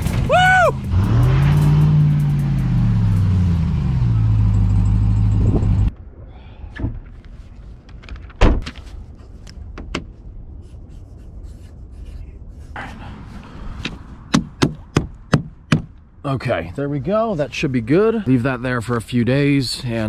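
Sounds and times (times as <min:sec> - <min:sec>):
vehicle engine running: 0:00.0 - 0:05.9.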